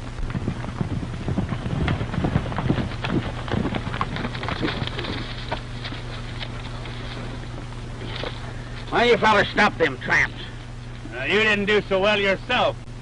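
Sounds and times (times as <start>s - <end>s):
horse hoofbeats clattering: 0.0s - 9.0s.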